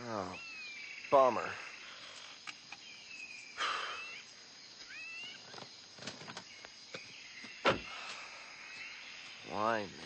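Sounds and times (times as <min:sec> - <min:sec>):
high insect drone: 0:00.0 - 0:10.0
gliding bird calls: 0:00.3 - 0:05.8
sharp thump: 0:07.6 - 0:08.0.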